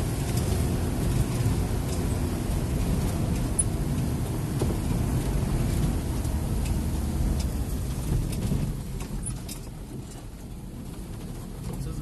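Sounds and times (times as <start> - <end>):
van engine and tyres rumbling: 0.0 - 12.0
light clicks and rattles: 0.2 - 12.0.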